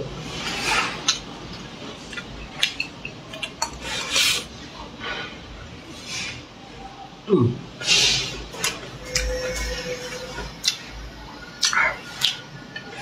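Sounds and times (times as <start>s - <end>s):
slurping food: 3.7s - 4.6s.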